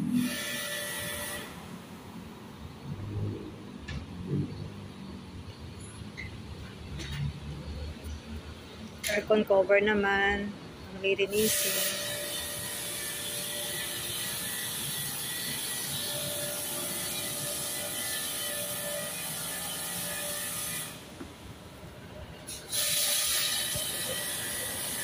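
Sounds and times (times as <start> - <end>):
pressure washer jet hissing: 11.3 - 18.2, 22.5 - 25.0.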